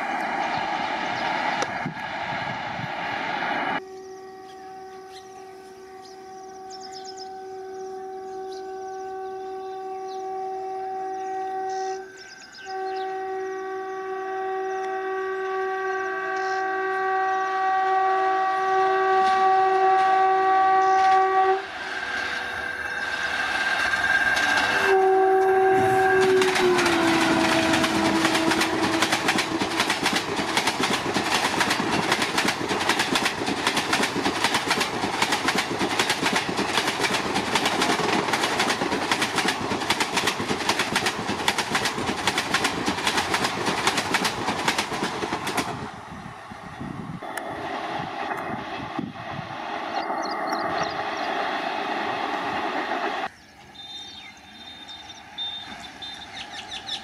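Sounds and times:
train clickety-clack over rail joints: 0:00.0 - 0:03.0, 0:14.8 - 0:57.0
locomotive horn blasts: 0:03.8 - 0:21.8, 0:24.0 - 0:30.2.

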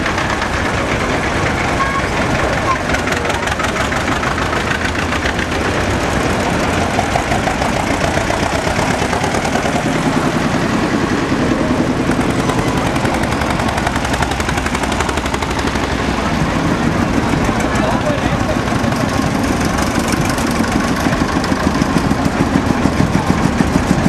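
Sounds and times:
tractor engines chugging: 0:00.0 - 0:24.0.

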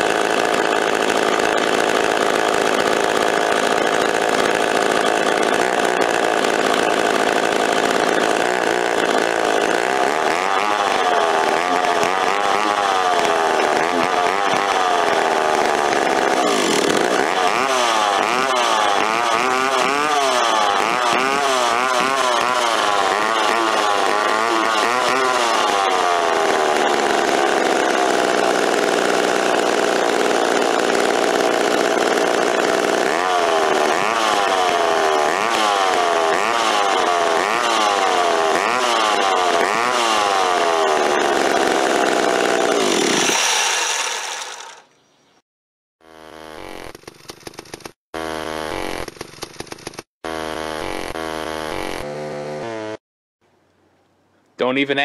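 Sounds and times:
chainsaw engine revving: 0:00.0 - 0:45.0, 0:46.0 - 0:53.0.

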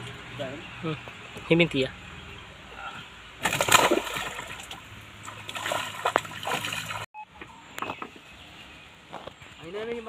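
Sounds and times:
fish thrashing in water: 0:03.4 - 0:07.1
water splashing and sloshing: 0:03.4 - 0:07.1.

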